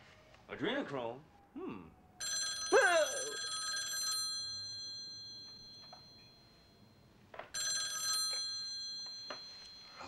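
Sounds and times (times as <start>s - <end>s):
telephone bell ringing: 2.2s - 10.0s.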